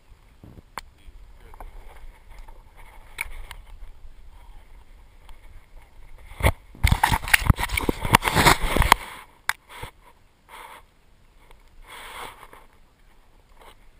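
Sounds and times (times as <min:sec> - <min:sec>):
soft rustles: 0:00.0 - 0:13.9
scraping and knocking on camera: 0:01.5 - 0:10.0.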